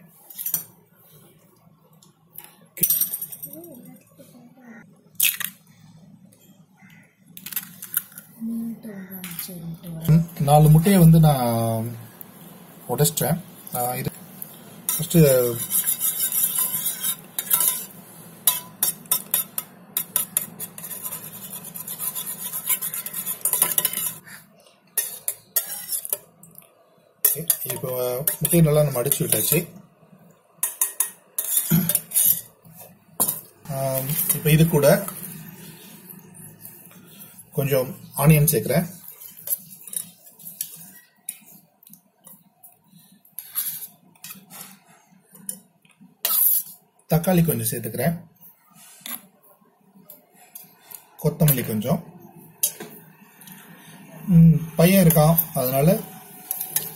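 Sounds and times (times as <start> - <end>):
spoon scraping and clinking on steel: 0.3 - 0.8, 14.9 - 24.2, 25.0 - 26.6, 27.2 - 29.7, 30.6 - 32.5, 33.2 - 35.4, 39.0 - 41.5, 46.2 - 46.8, 55.0 - 56.9.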